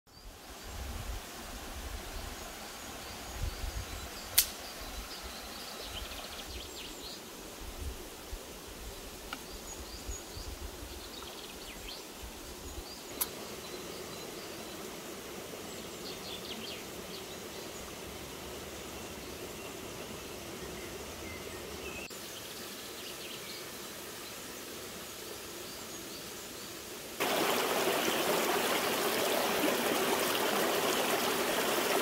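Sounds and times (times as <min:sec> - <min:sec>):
forest ambience: 0:00.1 - 0:32.0
faint birds chirping: 0:08.8 - 0:32.0.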